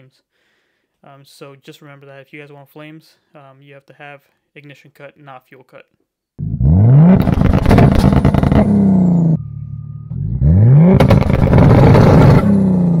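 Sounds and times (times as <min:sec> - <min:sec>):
engine revving against limiter: 0:06.4 - 0:13.0
exhaust cracks and pops: 0:07.1 - 0:08.8, 0:10.9 - 0:12.6.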